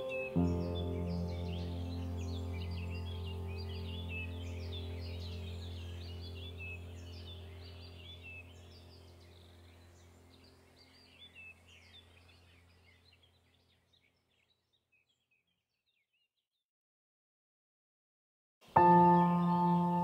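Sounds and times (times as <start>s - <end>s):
low steady drone: 0.0s - 10.9s
birds chirping: 0.0s - 16.3s, 18.6s - 20.0s.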